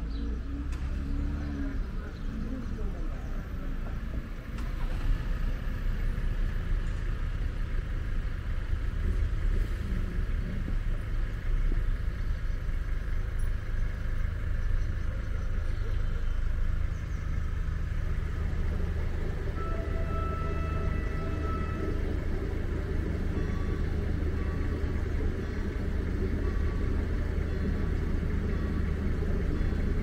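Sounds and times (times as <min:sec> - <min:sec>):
low rumble of vehicles: 0:00.0 - 0:30.0
faint high tones: 0:18.9 - 0:30.0.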